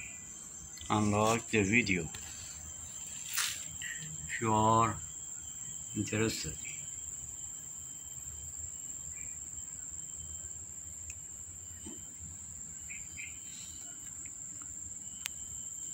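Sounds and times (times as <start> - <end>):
high-pitched insect trill: 0.0 - 15.9
faint ticks: 11.0 - 11.2, 13.8 - 15.4.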